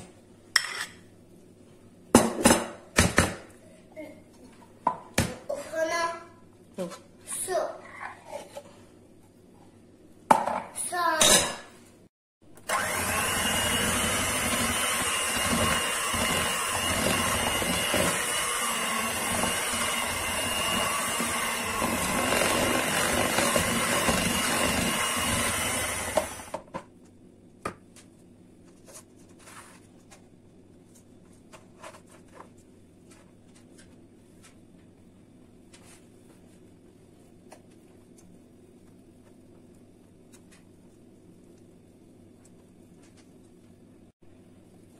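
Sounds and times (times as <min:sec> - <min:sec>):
electric hand mixer running: 0:12.6 - 0:26.6.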